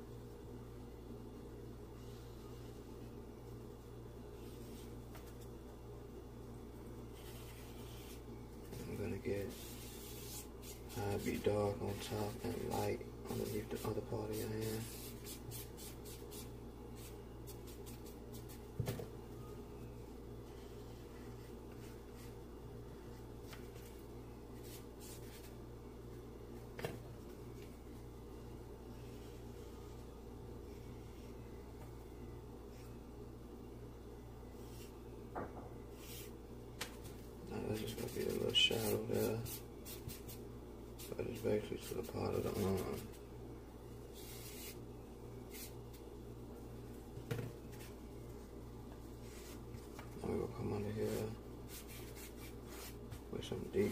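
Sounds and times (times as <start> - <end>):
steady low hum: 0.0 - 53.9
charcoal scratching on paper: 7.2 - 8.2, 8.9 - 11.5, 13.3 - 18.6, 36.0 - 36.3, 37.7 - 40.4, 44.1 - 44.8, 45.5 - 45.8, 51.0 - 53.0.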